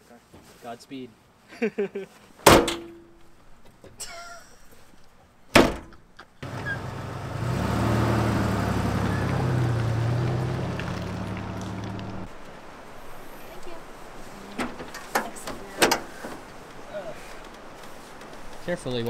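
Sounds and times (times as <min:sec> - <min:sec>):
vehicle door shutting: 0:05.6 - 0:07.1
vehicle engine and road hum: 0:06.4 - 0:12.4.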